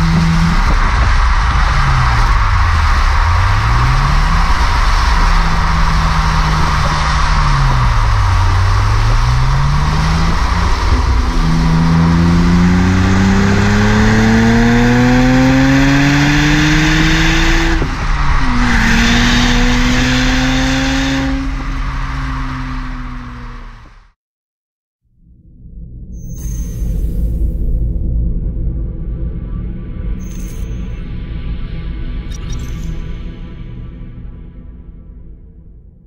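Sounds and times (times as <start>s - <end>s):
car engine accelerating: 0.0s - 24.2s
wind and road rush: 0.0s - 24.2s.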